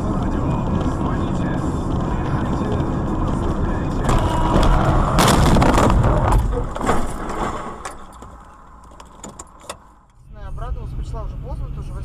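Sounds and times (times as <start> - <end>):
car crash crunching metal: 4.0 - 10.0.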